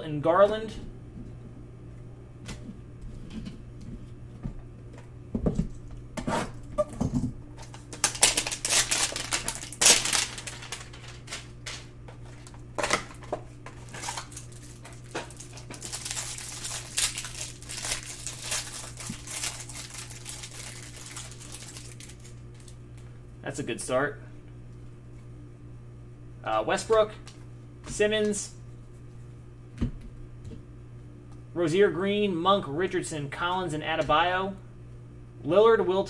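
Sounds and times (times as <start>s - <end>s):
plastic wrapper tearing and crinkling: 7.6s - 22.8s.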